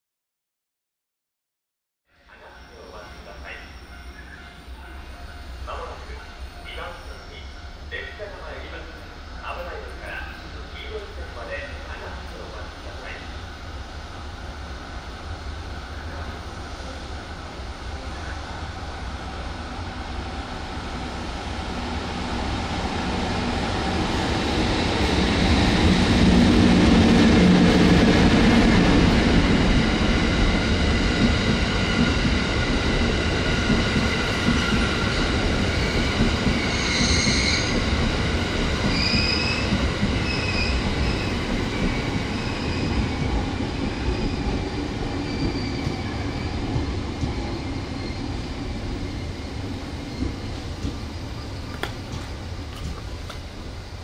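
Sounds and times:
train wheels rumbling: 2.8s - 54.0s
high-pitched wheel squeals: 36.6s - 37.8s, 38.9s - 41.4s, 45.2s - 46.5s.

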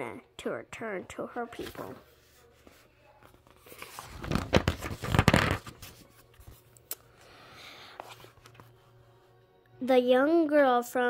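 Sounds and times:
paper page rustling: 1.6s - 6.7s.

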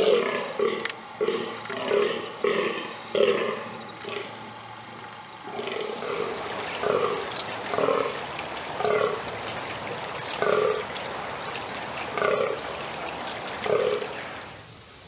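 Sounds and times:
deer groaning deep croaks: 0.0s - 9.3s, 10.3s - 10.9s, 12.1s - 12.8s, 13.6s - 14.2s.

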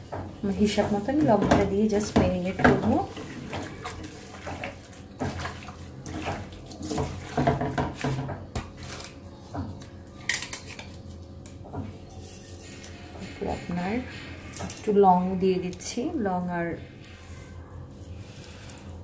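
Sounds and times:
wet squelching and rubbing: 2.0s - 9.3s.

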